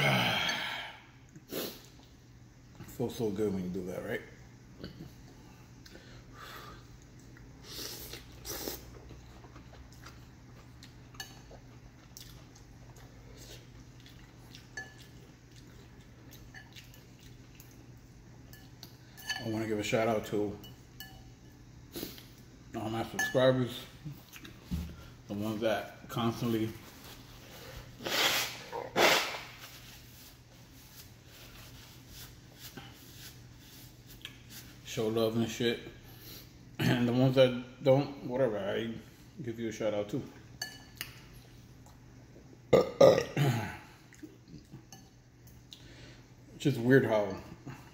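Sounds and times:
slurping noodles: 0:28.0 - 0:29.6.

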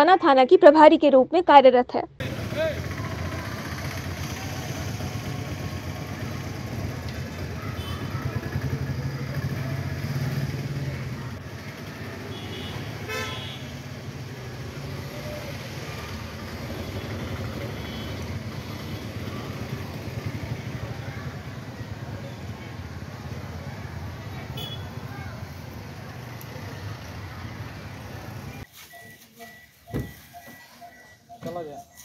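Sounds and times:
vehicle engine running: 0:02.2 - 0:28.7
car horn toot: 0:07.8 - 0:08.2, 0:12.3 - 0:13.8, 0:24.5 - 0:25.0.

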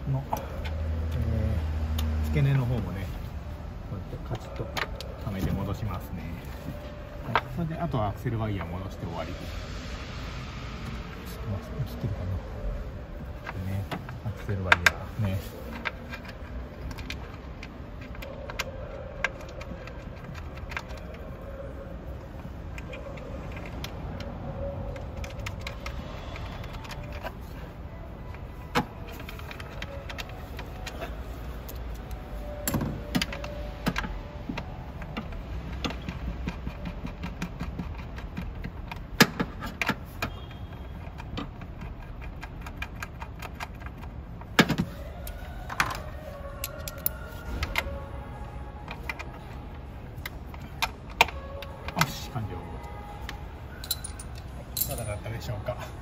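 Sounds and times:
tools clicking and clinking: 0:28.2 - 0:48.0, 0:53.2 - 0:55.4.

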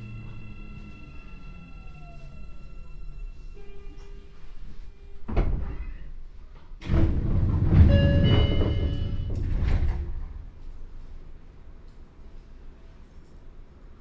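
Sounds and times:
electric train inverter whine: 0:00.0 - 0:05.3
sliding train doors opening: 0:00.0 - 0:11.1.

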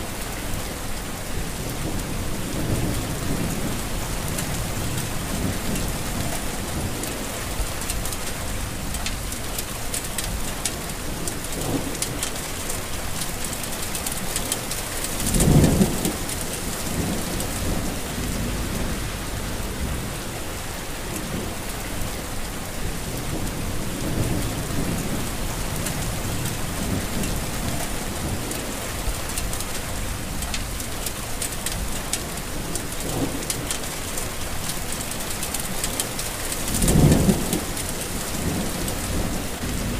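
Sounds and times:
heavy rain falling: 0:00.0 - 0:39.9
low rumble: 0:17.0 - 0:20.4.

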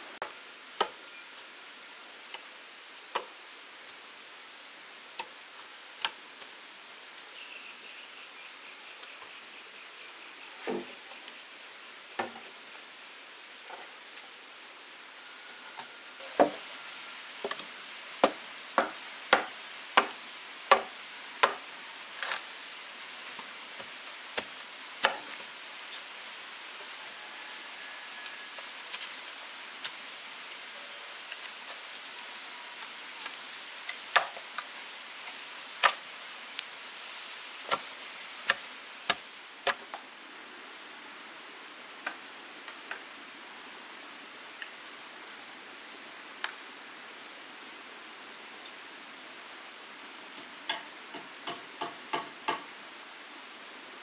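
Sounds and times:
steady hiss: 0:00.0 - 0:54.0.

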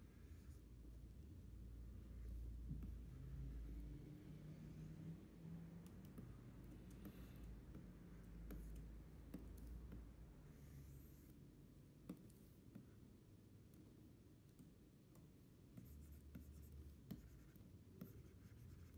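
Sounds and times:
stylus tapping on screen: 0:05.7 - 0:10.2.

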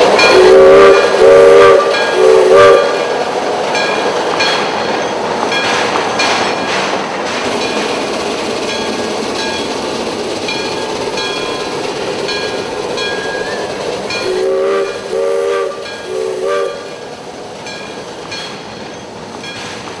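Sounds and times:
steam whistle blasts: 0:00.0 - 0:03.0, 0:14.2 - 0:16.9
train rumbling: 0:00.0 - 0:20.0.

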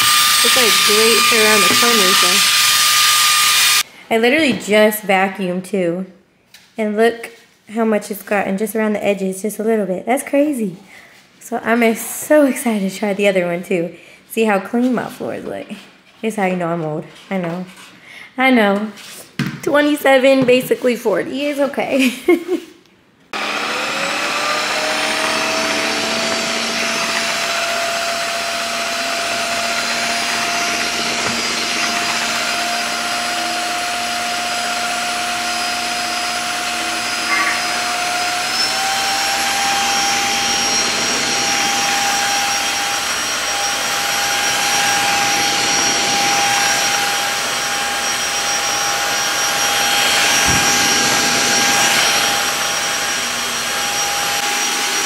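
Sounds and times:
floor washer motor whine: 0:00.0 - 0:03.9, 0:23.4 - 0:55.0.

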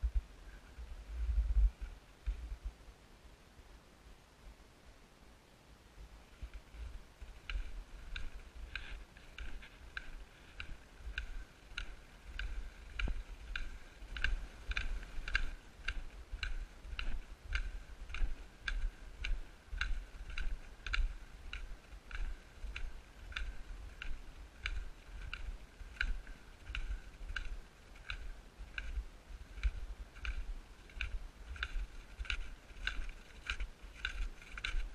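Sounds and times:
footsteps on packed snow: 0:06.7 - 0:34.9.

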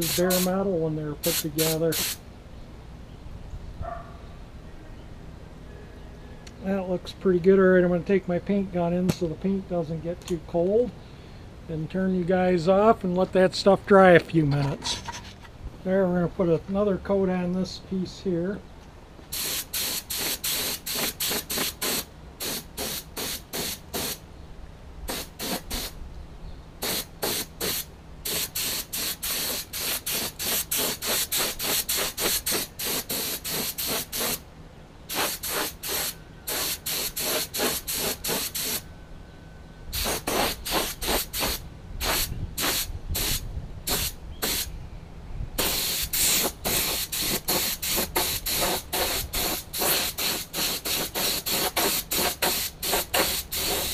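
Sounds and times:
paint spray gun hissing: 0:00.0 - 0:00.5, 0:01.2 - 0:02.2, 0:19.3 - 0:24.2, 0:25.1 - 0:26.0, 0:26.8 - 0:34.4, 0:35.1 - 0:38.8, 0:40.0 - 0:44.7, 0:45.6 - 0:53.9.

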